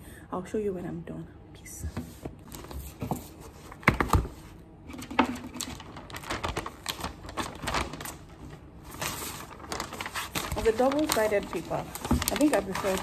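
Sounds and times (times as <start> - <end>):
wrapping paper crackling: 3.6 - 13.0.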